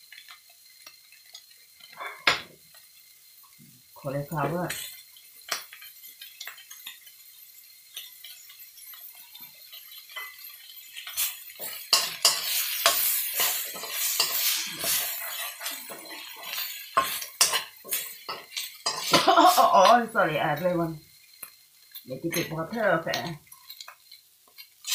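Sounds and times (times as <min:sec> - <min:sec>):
light sizzle: 0:00.0 - 0:24.9
metal spoon scraping wok: 0:04.4 - 0:20.8, 0:21.8 - 0:24.9.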